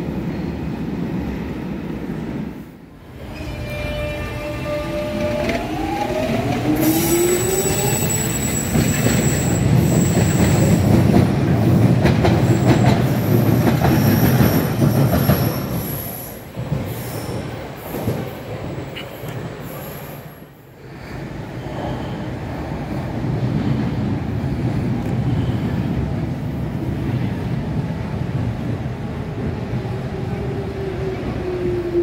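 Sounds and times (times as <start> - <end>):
wheels rumbling on rail: 1.2 - 32.0
high-pitched wheel squeal: 6.7 - 10.4.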